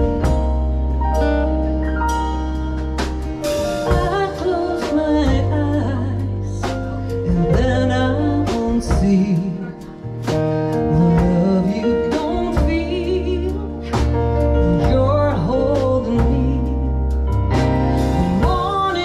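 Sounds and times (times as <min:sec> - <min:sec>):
instrumental accompaniment chords: 0:00.0 - 0:19.0
woman singing with vibrato: 0:03.8 - 0:09.9, 0:10.9 - 0:17.0, 0:18.2 - 0:19.0.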